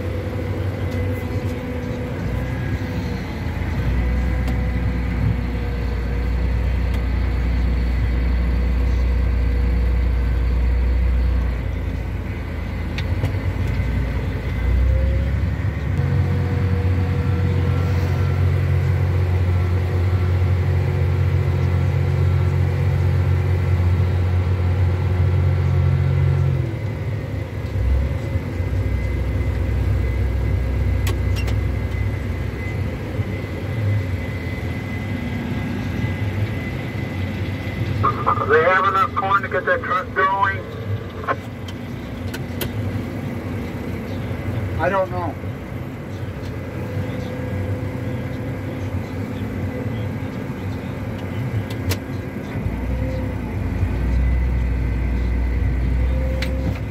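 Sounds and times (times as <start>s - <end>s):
combine harvester working: 0.0s - 56.9s
tractor diesel engine running: 0.0s - 56.9s.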